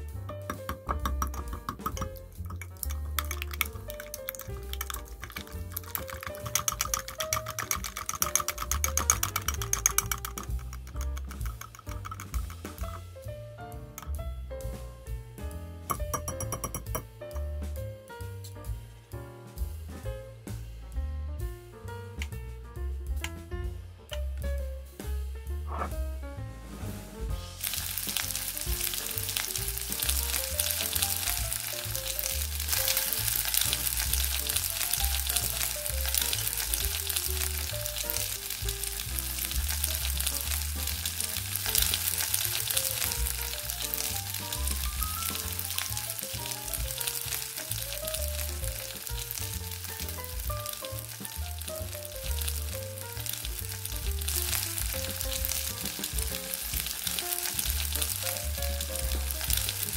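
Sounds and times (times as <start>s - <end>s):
soft background music: 0.0s - 59.9s
batter sizzling in a pan: 0.8s - 14.8s, 27.3s - 59.9s.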